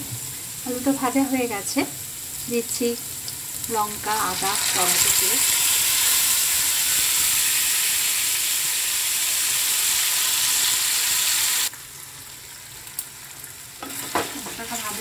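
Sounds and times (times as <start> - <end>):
hot oil sizzling in a frying pan: 0.0 - 15.0.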